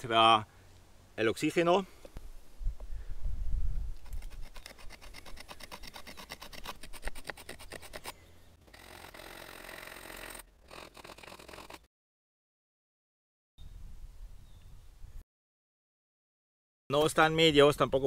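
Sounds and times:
stone scraping into wood: 4.0s - 8.2s.

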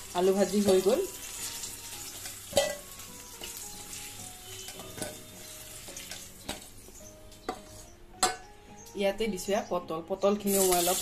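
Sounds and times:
potatoes sizzling in oil: 0.0s - 7.9s, 10.4s - 11.0s
spatula knocking against pan: 7.4s - 8.5s.

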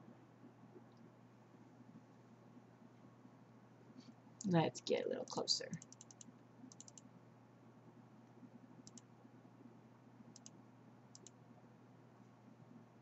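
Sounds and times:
faint sharp clicks: 8.8s - 9.1s, 10.3s - 11.4s.

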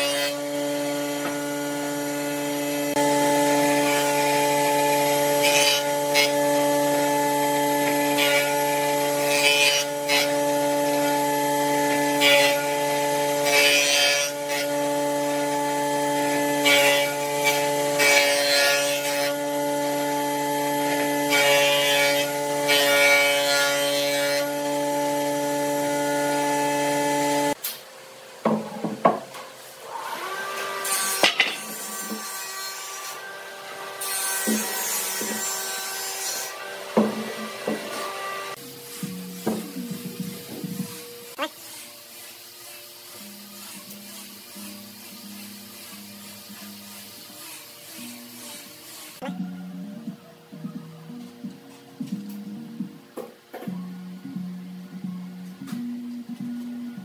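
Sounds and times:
cutterhead shaving wood: 29.9s - 45.2s.

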